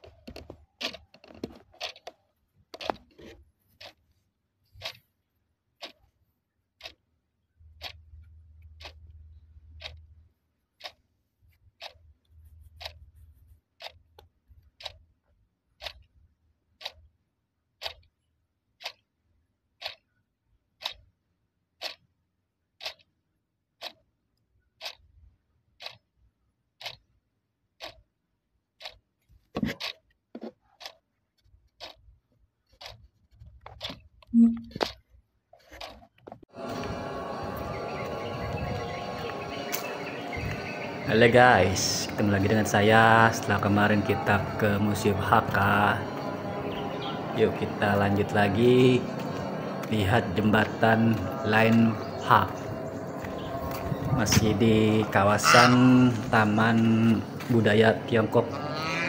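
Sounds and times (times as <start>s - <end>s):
clock ticking: 5.8s - 6.1s, 6.8s - 13.1s, 13.8s - 15.1s, 15.7s - 17.1s, 17.7s - 22.1s, 22.7s - 25.1s, 25.7s - 26.2s, 26.8s - 27.1s, 27.7s - 28.1s, 28.7s - 29.1s, 31.7s - 32.1s, 38.0s - 58.5s
faint low hum: 36.6s - 59.0s.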